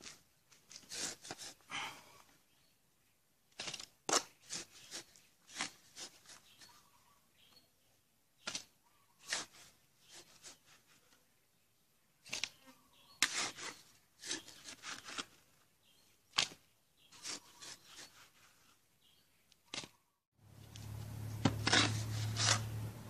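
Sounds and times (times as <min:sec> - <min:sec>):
soil rustling scrapes: 0:00.0 - 0:01.9, 0:03.5 - 0:07.0, 0:08.4 - 0:11.3, 0:12.2 - 0:23.0.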